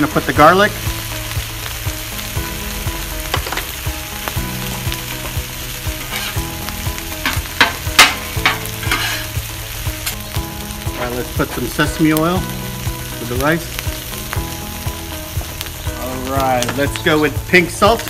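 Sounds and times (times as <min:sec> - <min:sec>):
food sizzling on a griddle: 0:00.0 - 0:18.0
metal spatula scraping griddle: 0:06.0 - 0:06.6, 0:07.2 - 0:09.4.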